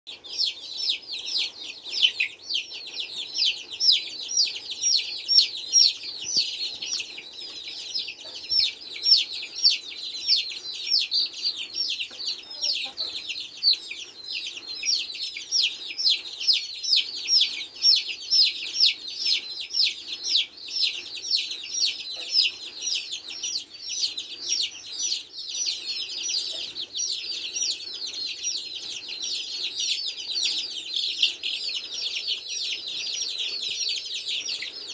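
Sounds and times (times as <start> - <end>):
chicks peeping: 0.1 - 34.9.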